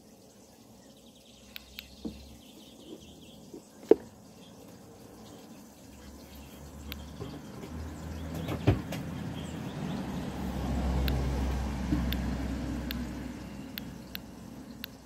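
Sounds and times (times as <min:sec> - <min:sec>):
faint ticks: 0:01.5 - 0:02.0, 0:06.8 - 0:07.1, 0:13.7 - 0:15.0
vehicle passing rumble: 0:06.0 - 0:14.8.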